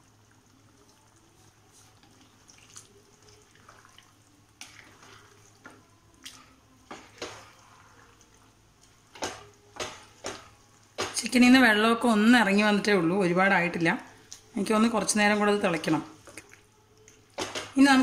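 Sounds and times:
spatula scraping a frying pan: 4.6 - 5.8, 6.9 - 8.3.

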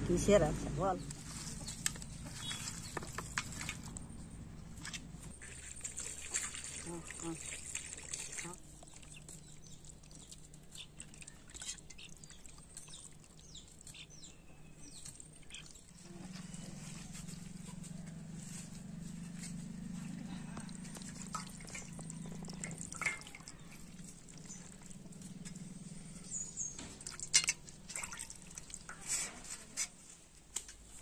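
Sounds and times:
low steady hum: 0.0 - 30.5
splashing and squelching in water: 4.7 - 17.6, 20.1 - 25.5, 26.7 - 29.9.

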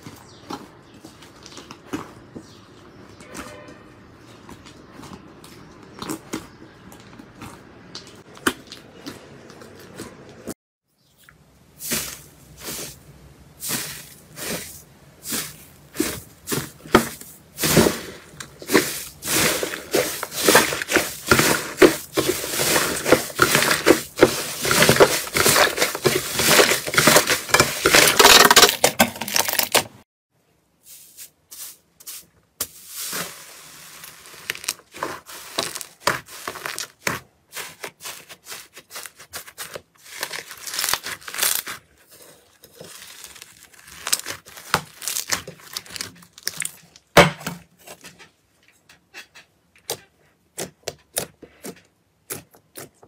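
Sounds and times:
hands squishing crackling slime: 15.3 - 28.4, 32.6 - 47.1.

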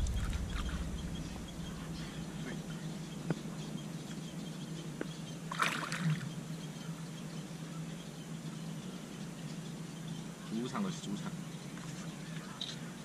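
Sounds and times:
water splashing: 0.0 - 2.0, 5.5 - 6.2
steady low hum: 0.0 - 13.0.

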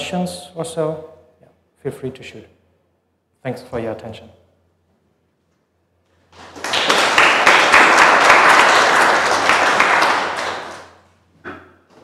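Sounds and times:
audience applauding: 6.3 - 11.1.

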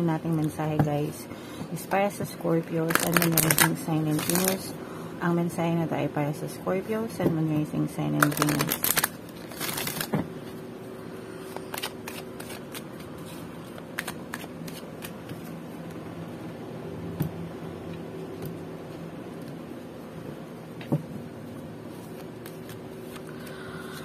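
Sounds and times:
steady low hum: 0.0 - 24.0
cards riffling: 8.2 - 10.2, 11.5 - 15.4
cards clicking and sliding: 11.5 - 15.5.

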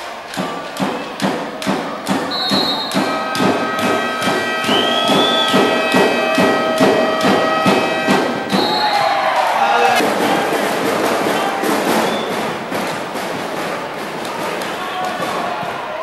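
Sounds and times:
drum beating steady rhythm: 0.0 - 16.0
long held notes: 2.1 - 8.8.

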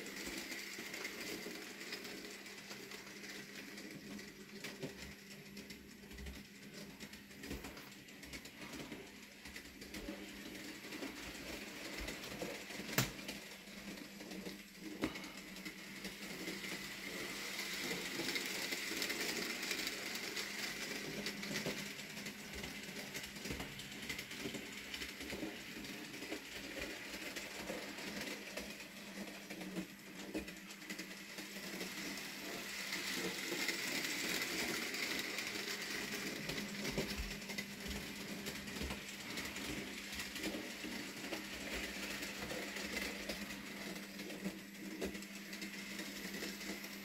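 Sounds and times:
model train motor hum: 0.0 - 47.0
wheels clicking over track: 0.0 - 47.0
wheels rattling on rail: 0.0 - 47.0.

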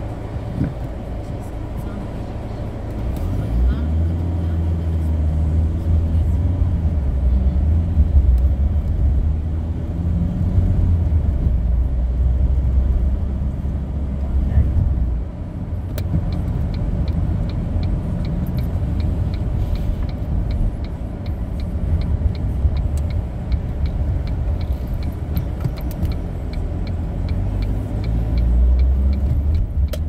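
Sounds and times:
car cabin road and engine rumble: 0.0 - 30.0
turn signal ticking: 10.6 - 30.0.

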